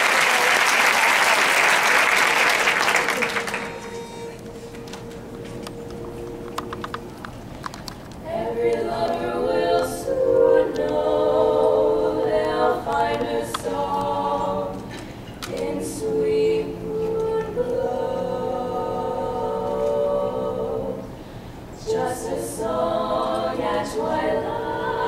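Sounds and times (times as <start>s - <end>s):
women singing a cappella harmony: 8.2s - 25.0s.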